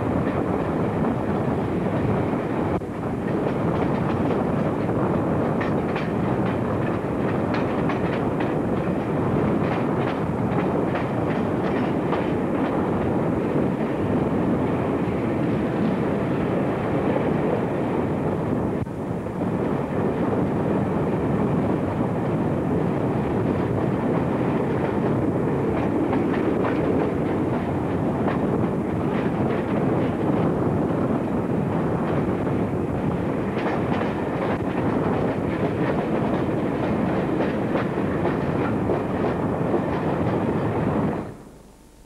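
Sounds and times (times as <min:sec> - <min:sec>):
train rumble: 0:00.0 - 0:42.0
wheels clicking over rail joints: 0:05.6 - 0:12.8.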